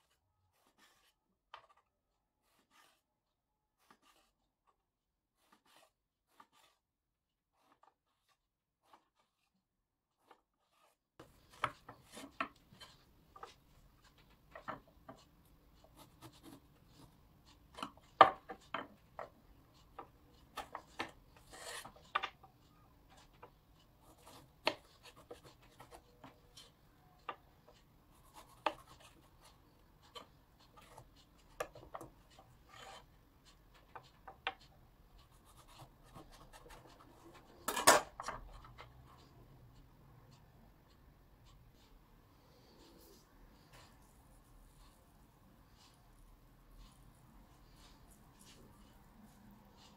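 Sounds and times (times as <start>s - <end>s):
knife cutting on wooden board: 2.4s - 3.0s, 3.8s - 4.4s, 5.4s - 6.8s, 7.5s - 9.5s, 10.1s - 19.3s, 19.9s - 22.4s, 28.2s - 29.3s.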